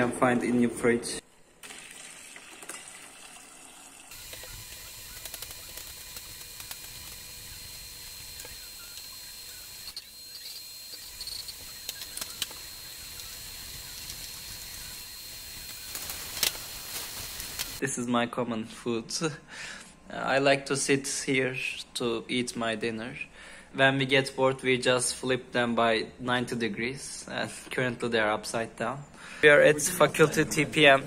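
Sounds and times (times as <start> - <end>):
pot hissing on hob: 4.1 - 10.0.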